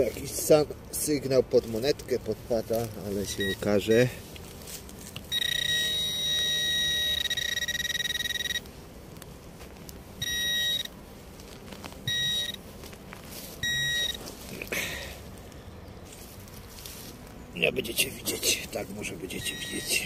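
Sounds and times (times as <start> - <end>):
metal detector signal tone: 3.3 - 4.2, 5.3 - 8.7, 10.2 - 10.9, 12.1 - 12.6, 13.6 - 14.2, 19.3 - 20.0
metal detector short beeps: 3.4 - 4.1, 5.3 - 8.6, 10.2 - 10.9, 12.1 - 12.6, 13.6 - 14.2, 19.3 - 20.0.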